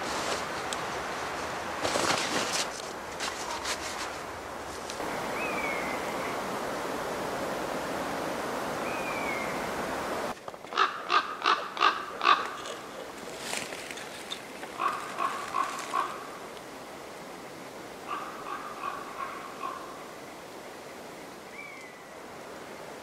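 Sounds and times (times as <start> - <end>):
rustling and knocks: 1.3 - 5.0
high falling bird calls: 5.1 - 6.4, 8.8 - 9.7, 21.5 - 22.2
crow cawing: 10.7 - 12.6, 14.8 - 16.3, 18.1 - 19.9.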